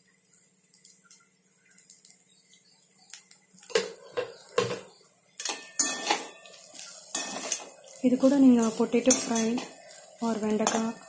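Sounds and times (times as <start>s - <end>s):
metal spoon knocking on pot: 3.7s - 6.2s.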